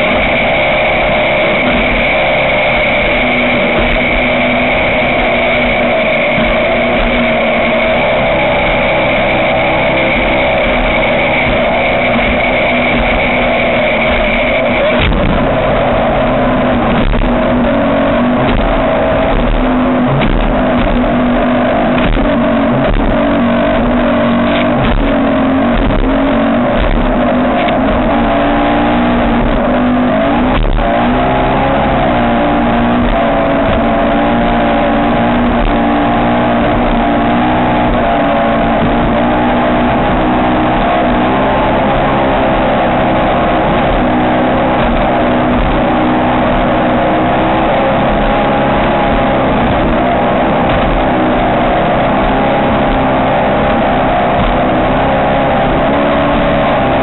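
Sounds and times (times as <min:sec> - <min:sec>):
boat engine running hard: 0:00.0 - 0:57.0.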